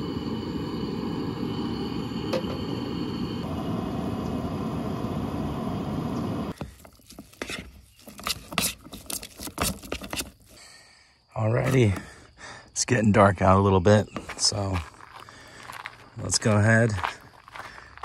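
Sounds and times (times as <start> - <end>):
camp stove burner rushing: 0.0 - 8.7
utensil scraping metal pot: 6.9 - 10.3.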